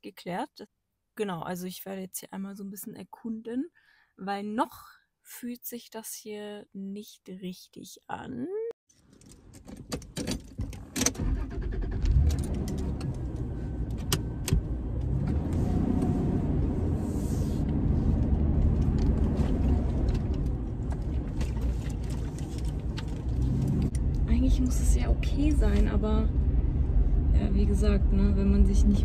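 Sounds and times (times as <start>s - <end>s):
car engine and road noise: 8.9s - 29.0s
sharp clicks and knocks: 9.0s - 11.2s, 12.0s - 15.2s.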